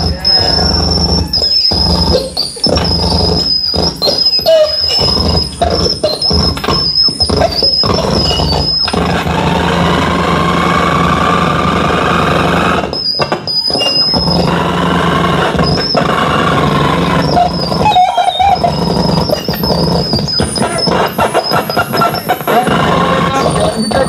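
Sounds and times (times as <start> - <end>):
distorted noise music: 0.0 - 24.0
high steady squeal: 0.0 - 24.0.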